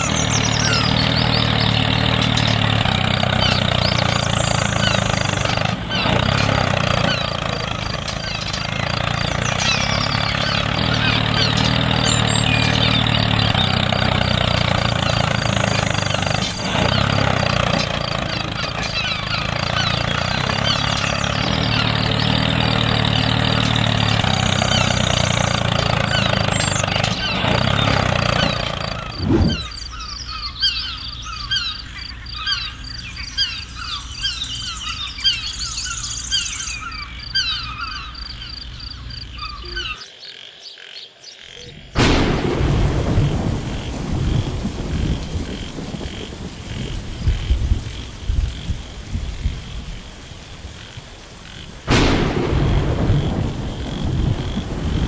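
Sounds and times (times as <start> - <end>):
engine running: 0.0 - 40.0, 41.7 - 48.0, 51.8 - 55.0
birds chirping: 0.0 - 55.0.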